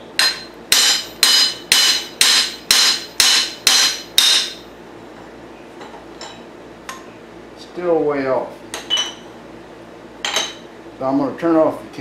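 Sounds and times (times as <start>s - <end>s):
hammer striking metal flywheel: 0.1s - 4.7s.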